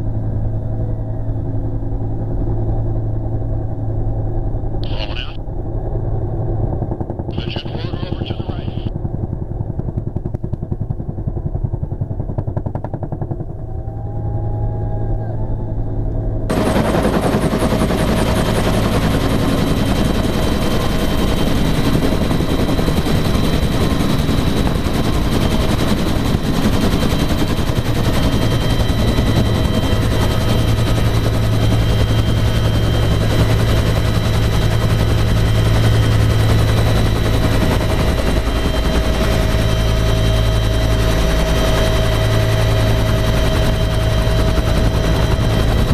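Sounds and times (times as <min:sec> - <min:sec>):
turbine whine: 0:07.3 - 0:08.9, 0:13.5 - 0:45.9.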